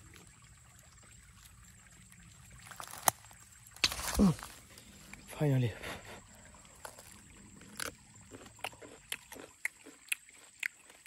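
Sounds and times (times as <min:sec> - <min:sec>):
leaves rustling: 0:02.4 - 0:08.0
grass stalk snapping: 0:02.8 - 0:03.2, 0:03.8 - 0:04.6.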